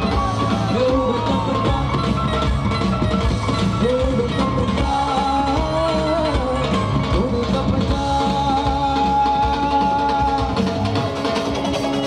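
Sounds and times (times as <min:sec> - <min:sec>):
dhol drum: 0:00.0 - 0:12.0
drums: 0:00.0 - 0:12.0
electric guitar: 0:00.0 - 0:12.0
live band over pa: 0:00.0 - 0:12.0.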